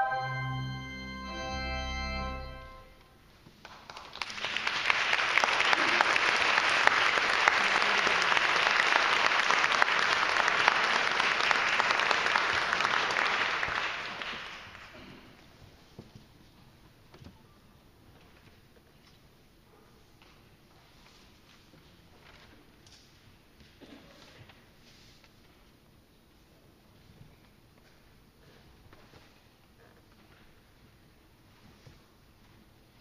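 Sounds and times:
choir with organ: 0:00.0 - 0:02.9
audience applauding: 0:03.6 - 0:15.1.

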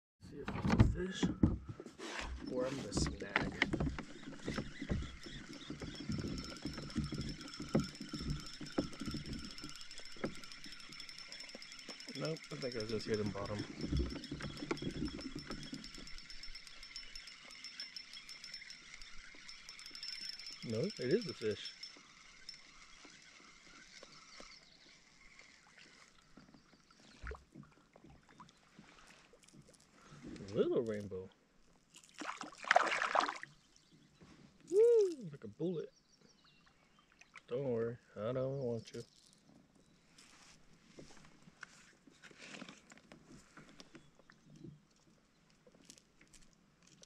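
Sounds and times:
fishing reel cranking: 0:02.3 - 0:26.4.

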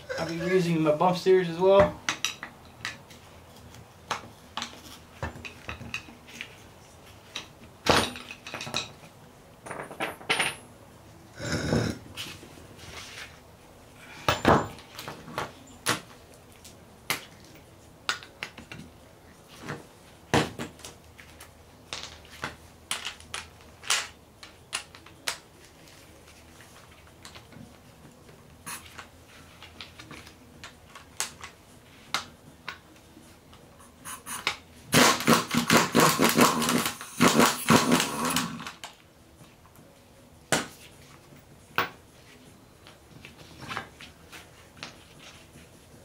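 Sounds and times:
metal parts clinking and knocking: 0:07.3 - 0:10.6.

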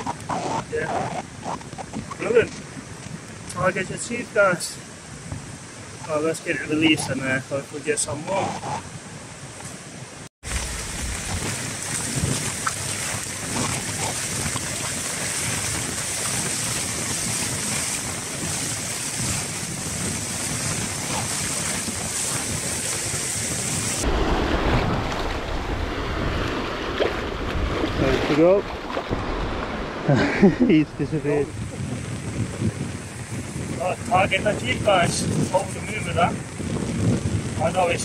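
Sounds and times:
wind on microphone: 0:00.0 - 0:07.4, 0:10.4 - 0:38.0
deep rush of water: 0:10.4 - 0:36.6
small waves washing over shore: 0:10.4 - 0:38.0.

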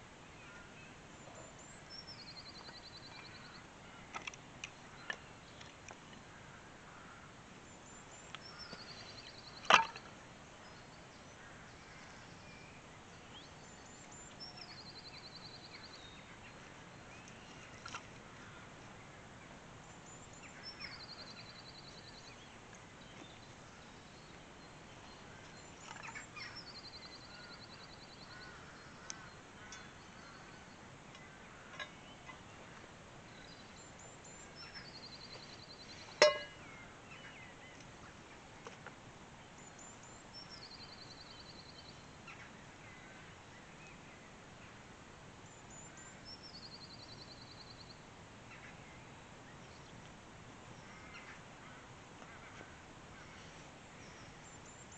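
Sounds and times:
songbird trilling: 0:34.4 - 0:36.8.

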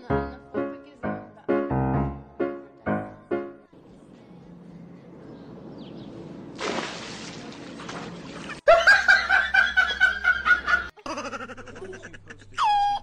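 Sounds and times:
water splash: 0:06.5 - 0:08.7
hearty laughing: 0:08.7 - 0:13.0.

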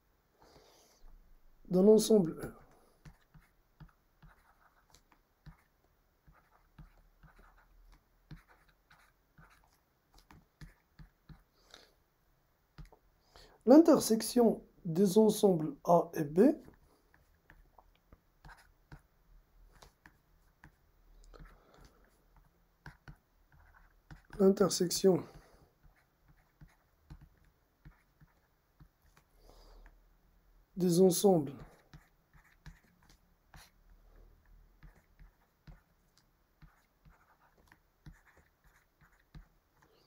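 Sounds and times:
pen scratching: 0:02.5 - 0:11.5, 0:16.7 - 0:19.1, 0:19.7 - 0:24.5, 0:25.3 - 0:29.3, 0:31.5 - 0:33.8, 0:34.8 - 0:39.9.

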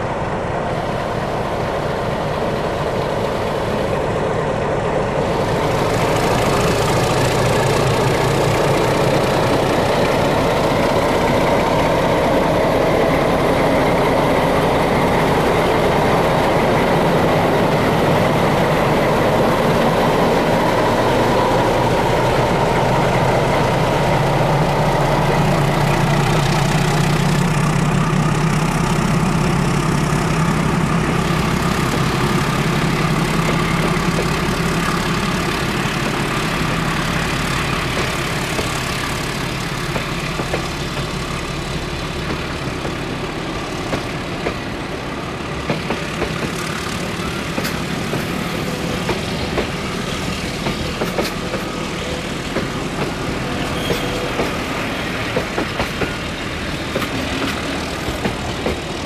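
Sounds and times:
diesel locomotive running: 0:00.0 - 0:59.0
train coaches rolling on rails: 0:00.0 - 0:59.0.

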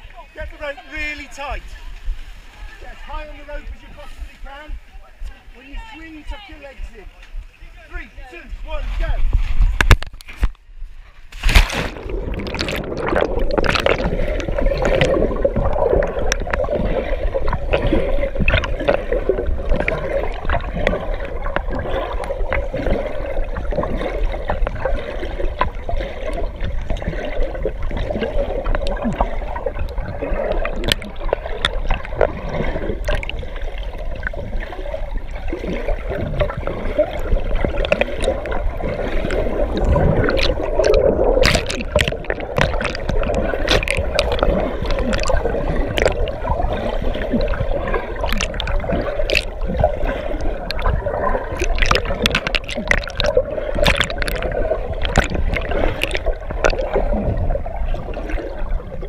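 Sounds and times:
muffled water gurgling: 0:09.1 - 0:59.0
knocks and clicks: 0:39.8 - 0:46.3, 0:51.6 - 0:56.9.

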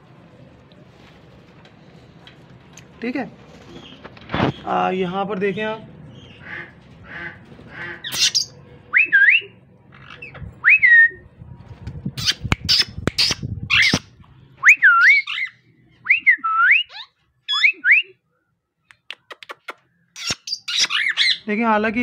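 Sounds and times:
parakeets shrill whistled calls: 0:08.1 - 0:09.4, 0:12.2 - 0:14.1, 0:14.7 - 0:15.6, 0:20.2 - 0:21.5.

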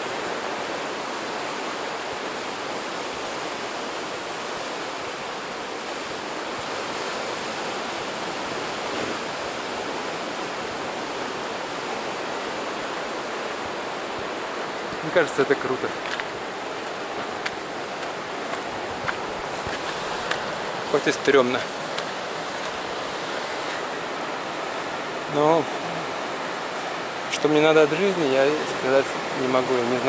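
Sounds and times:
ocean surf rushing: 0:00.0 - 0:30.0.

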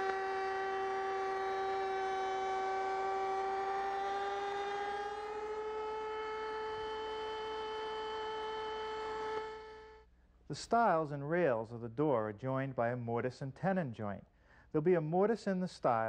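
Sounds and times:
router cutting wood: 0:00.0 - 0:10.0.

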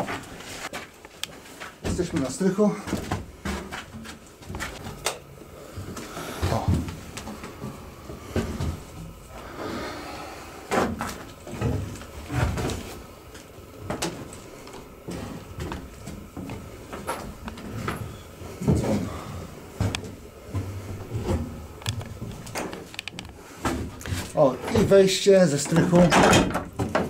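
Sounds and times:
footsteps on wooden floorboards: 0:00.0 - 0:05.0, 0:05.7 - 0:09.2, 0:10.7 - 0:23.0.

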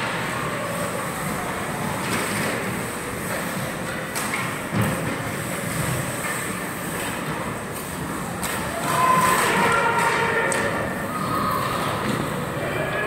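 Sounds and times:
voices shouting: 0:08.7 - 0:13.0.

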